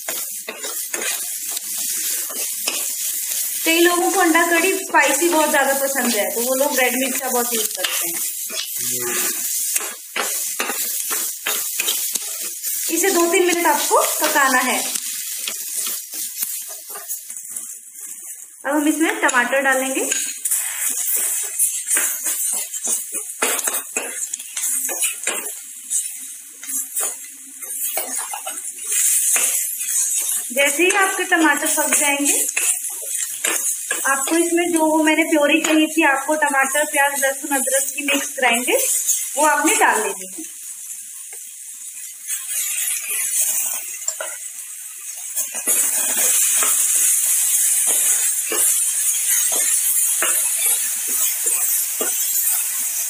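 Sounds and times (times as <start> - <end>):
spoon scraping frying pan: 0.0 - 3.4, 19.2 - 34.9, 45.4 - 53.0
food sizzling in oil: 0.0 - 53.0.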